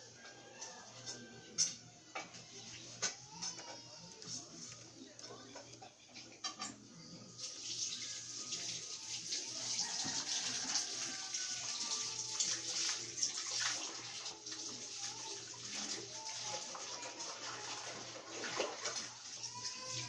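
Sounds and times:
running water rushing: 7.4 - 20.0.

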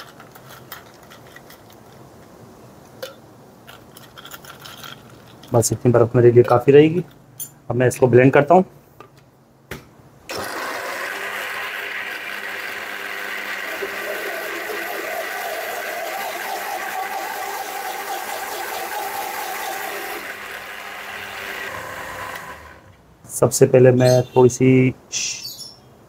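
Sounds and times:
blender running: 10.3 - 22.9.

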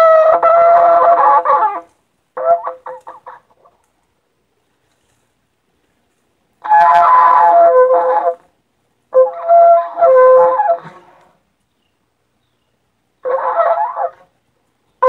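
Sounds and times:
shofar blasts: 6.6 - 8.4, 9.2 - 11.2.

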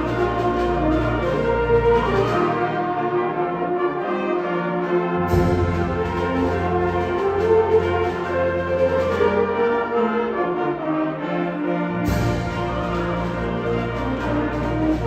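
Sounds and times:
concert band brass chords: 0.0 - 15.0.

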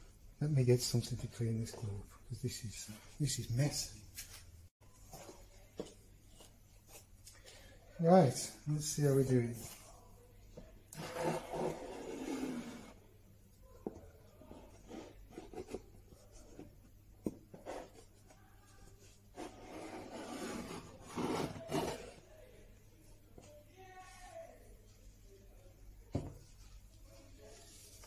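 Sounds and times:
hand scraping on wood: 11.0 - 13.0, 19.3 - 22.2.

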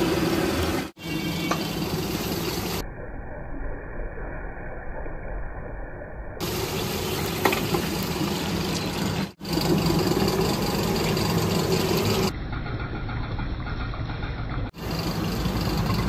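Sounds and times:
oil sizzling: 0.0 - 2.8, 6.4 - 12.3.

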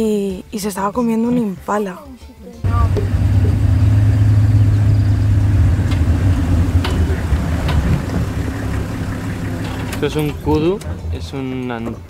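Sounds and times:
vehicle engine humming: 2.6 - 12.0.

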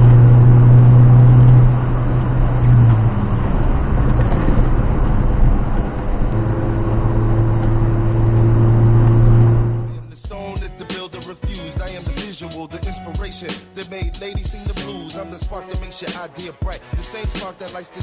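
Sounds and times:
car engine droning: 0.0 - 10.2
tyre and road noise: 0.0 - 10.3.

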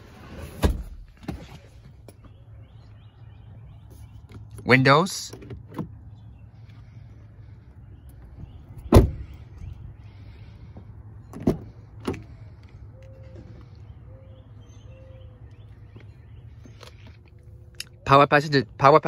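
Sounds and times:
car door shutting: 0.3 - 1.6, 8.4 - 9.4, 11.3 - 12.4.

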